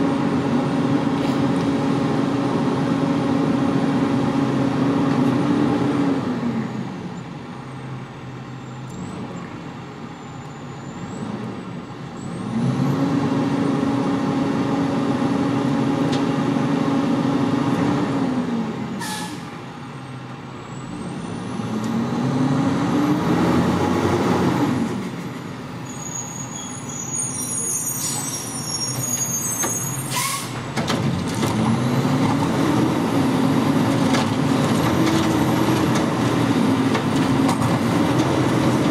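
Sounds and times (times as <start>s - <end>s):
diesel truck engine revving: 0.0s - 9.9s, 11.0s - 19.0s, 19.6s - 25.5s, 28.5s - 38.9s
air brake hisses: 19.0s - 19.6s, 27.2s - 30.6s.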